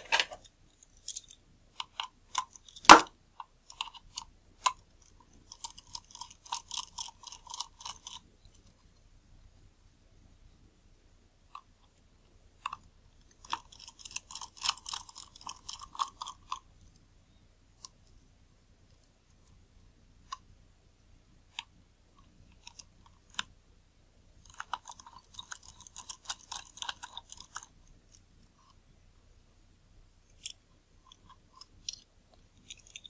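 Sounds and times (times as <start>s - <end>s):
small metal clicking and scraping: 0.0s - 9.1s, 24.4s - 28.8s, 30.3s - 33.0s.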